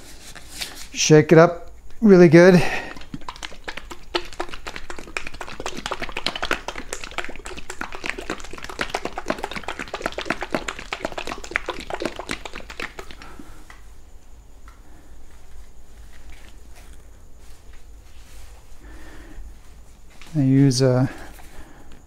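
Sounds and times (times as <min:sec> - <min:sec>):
plastic bottle shaken: 0:02.5 - 0:13.6.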